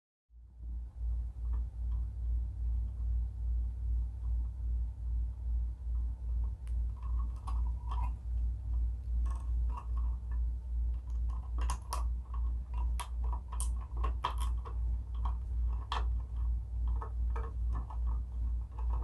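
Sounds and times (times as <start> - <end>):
pulsing low hum: 0.3 - 19.0
clicks of handling copper wires: 6.4 - 19.0.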